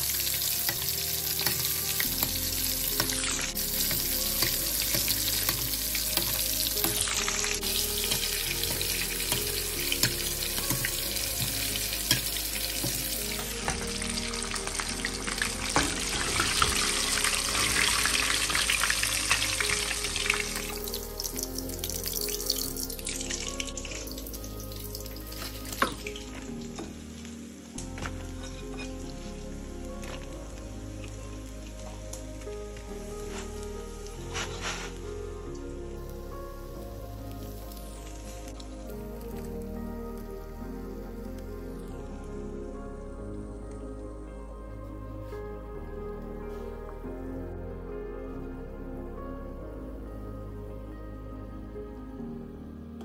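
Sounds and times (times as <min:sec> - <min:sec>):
fish deep-frying in hot oil: 0:00.0 - 0:27.8
background music: 0:00.0 - 0:53.0.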